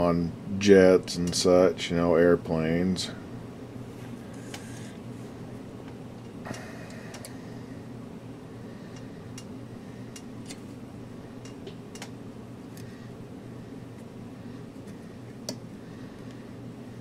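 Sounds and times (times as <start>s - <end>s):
steady low hum: 0.0s - 17.0s
wire leads clicking on metal: 11.4s - 12.9s.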